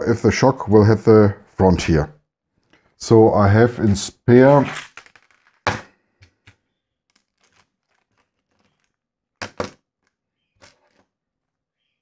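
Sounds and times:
parts bags rustling: 4.5s - 9.0s
plastic parts clicking: 6.2s - 11.0s.

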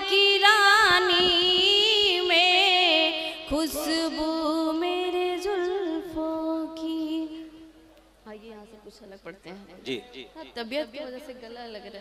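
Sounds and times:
woman singing slow melody: 0.0s - 7.6s.

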